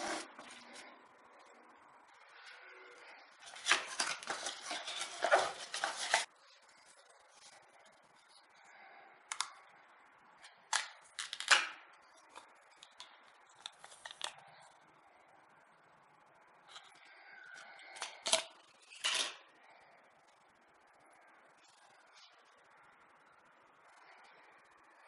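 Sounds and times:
cardboard and plastic rustling: 3.4s - 6.3s.

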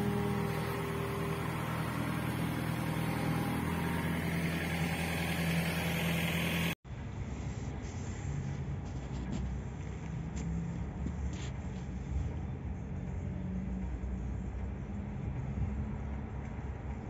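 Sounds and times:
diesel engine running: 0.0s - 6.8s
dull background noise: 6.9s - 17.0s.

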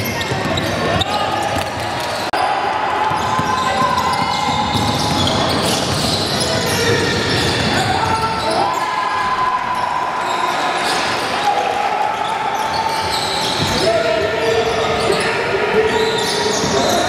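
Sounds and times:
voices of players and spectators: 0.0s - 17.0s
basketball bouncing on gym floor: 3.1s - 6.5s.

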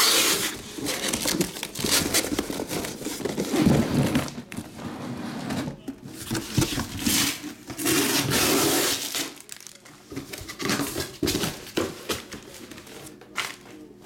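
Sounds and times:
plastic wrapping crinkling: 8.8s - 9.9s.

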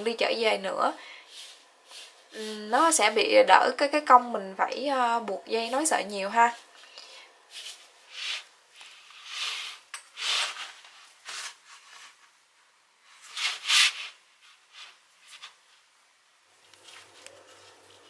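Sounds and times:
yarn swishing through mesh: 1.3s - 2.9s.

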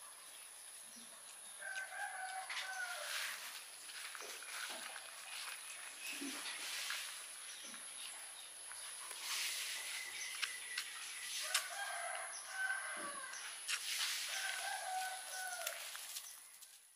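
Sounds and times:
rooster crowing: 1.6s - 3.4s, 11.4s - 13.4s, 14.3s - 16.0s.

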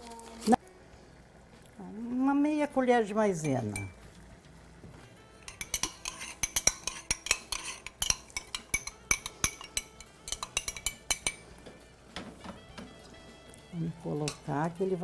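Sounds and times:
spoon clinking against glass: 3.4s - 4.0s, 5.4s - 11.4s.

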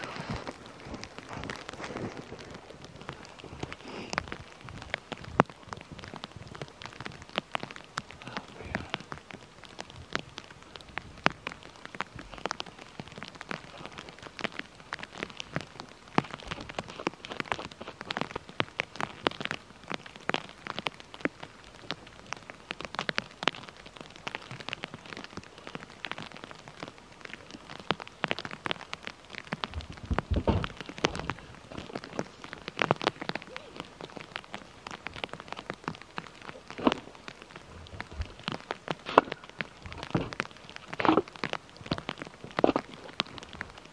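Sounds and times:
footsteps crunching in snow: 0.0s - 4.6s
snow crackling and pattering: 0.0s - 43.9s.

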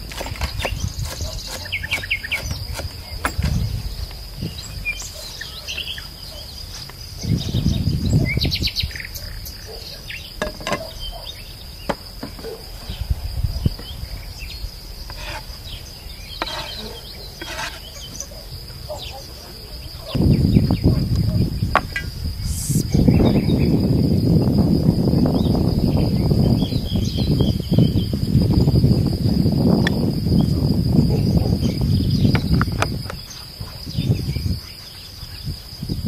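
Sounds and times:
insects trilling: 0.0s - 36.0s
birds chirping: 0.1s - 23.8s.

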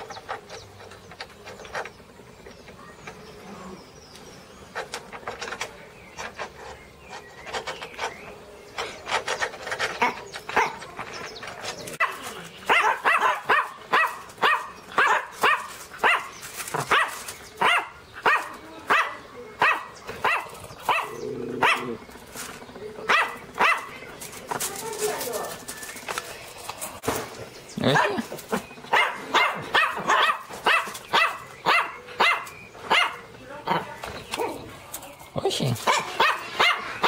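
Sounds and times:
small dog barking: 12.0s - 22.0s, 23.1s - 24.0s, 27.8s - 28.3s, 28.9s - 34.6s, 35.8s - 36.9s.

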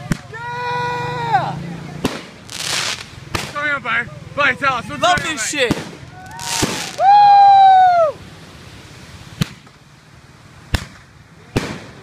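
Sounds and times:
firework bangs: 2.0s - 3.8s, 5.1s - 7.2s, 9.3s - 9.8s, 10.7s - 12.0s
firework rising whoosh: 2.2s - 3.5s
firework whistle: 6.2s - 7.8s.

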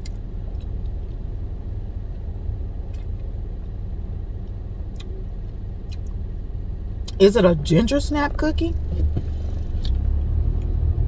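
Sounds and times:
car cabin rumble: 0.0s - 10.1s.

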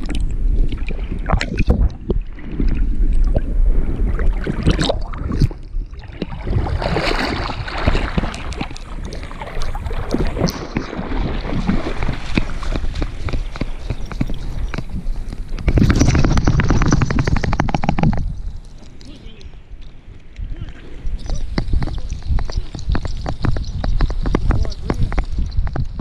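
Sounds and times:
water sloshing and gurgling: 0.0s - 26.0s
rhythmic swimming strokes: 6.4s - 17.9s
dog splashing out of water: 6.5s - 8.7s, 9.3s - 13.6s.

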